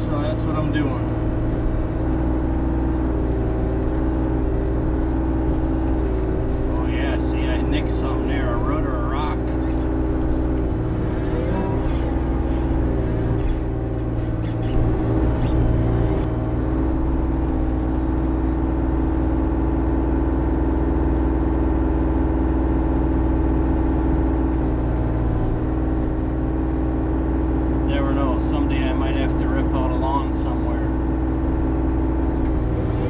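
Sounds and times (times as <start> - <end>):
diesel engine running: 0.0 - 33.0.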